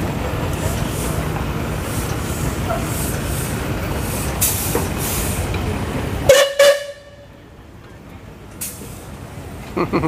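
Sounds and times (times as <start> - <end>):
steam hiss: 0.5 - 5.6
steam whistle blasts: 6.3 - 7.2.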